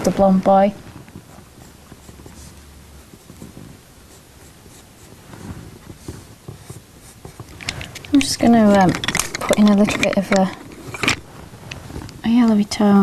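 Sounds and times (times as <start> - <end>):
pencil scratching on paper: 1.2 - 7.6.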